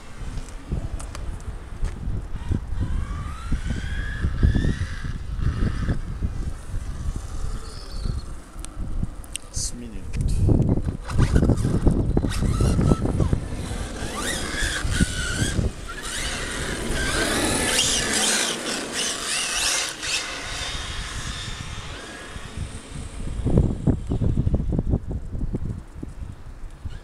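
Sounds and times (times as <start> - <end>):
remote control car motor whine: 2.3 - 8.8, 10.8 - 24.8.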